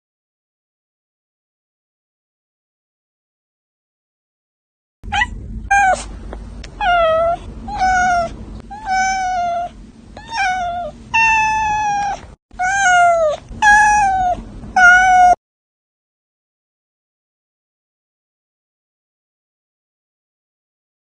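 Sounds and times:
cat meowing: 5.1 - 6.1, 6.7 - 15.4.

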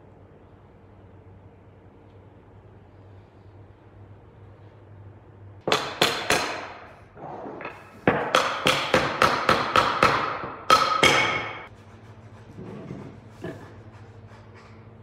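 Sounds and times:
hammer knocking on wood: 8.0 - 11.7.

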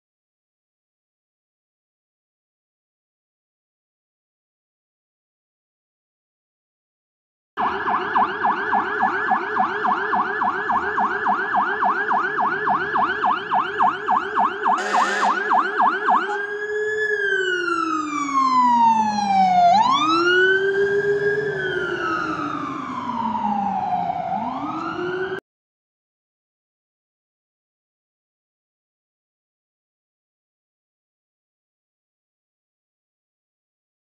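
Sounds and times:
fire engine siren: 7.6 - 25.4.

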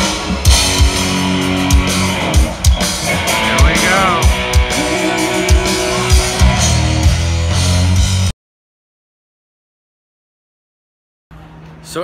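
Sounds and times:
electric guitar lead bending: 0.0 - 8.3
live rock band: 0.0 - 8.3.

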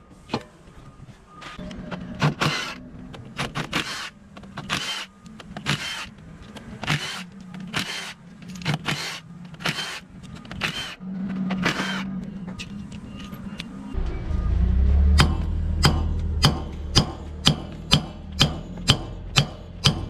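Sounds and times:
impact wrench hammering: 15.2 - 20.0.

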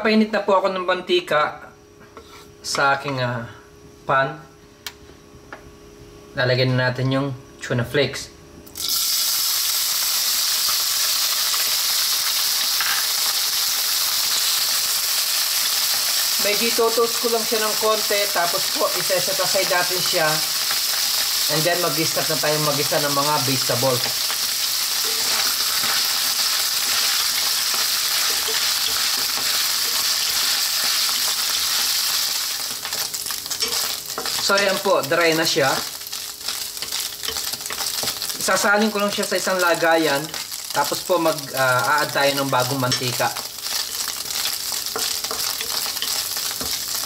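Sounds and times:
fish frying in oil: 8.8 - 47.0
spatula scraping wok: 23.9 - 34.9.

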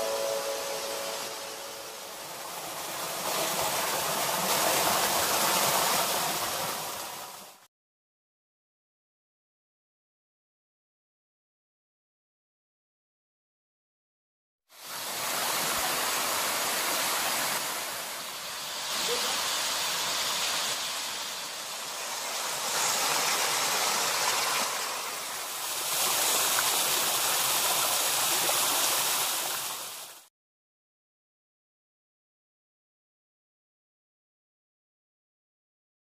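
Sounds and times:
water splashing over cascades: 0.0 - 7.6, 14.8 - 30.3.

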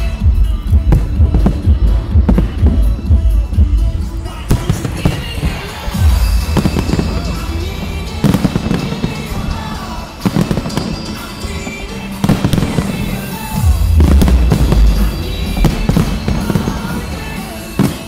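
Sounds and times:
fireworks bangs and crackling: 0.0 - 18.0
loud music: 0.0 - 18.0
deep rumble: 0.6 - 4.8, 5.5 - 10.2, 13.6 - 16.4.

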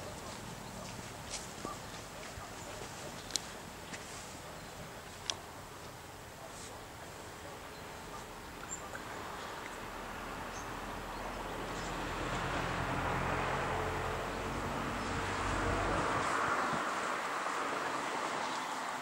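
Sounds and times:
low engine hum: 7.4 - 18.4.

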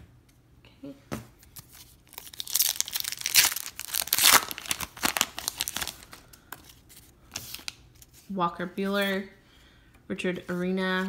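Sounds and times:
wrapper tearing and crinkling: 1.6 - 6.4.

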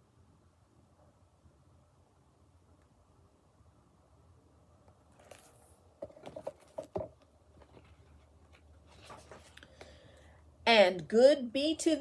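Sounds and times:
book rustling: 4.9 - 10.2.

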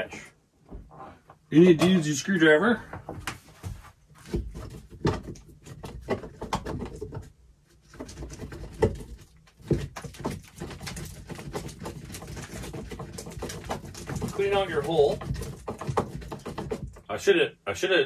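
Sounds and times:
screwdriver scraping in wooden hole: 7.9 - 17.0.

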